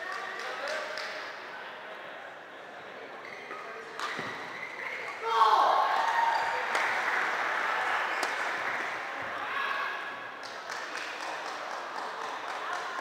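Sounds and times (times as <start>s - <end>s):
voices in echoing hall: 0.0s - 13.0s
spectators applauding: 10.4s - 13.0s.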